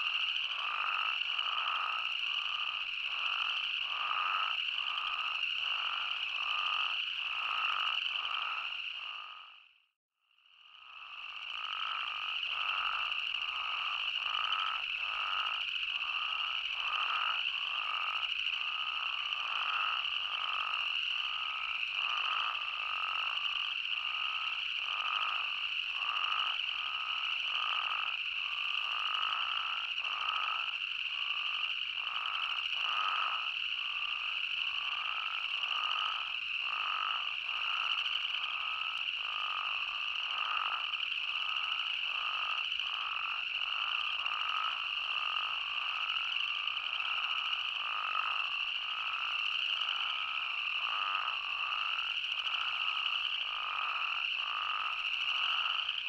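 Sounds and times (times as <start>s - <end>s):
toads calling: 0.0s - 9.6s, 11.1s - 56.0s.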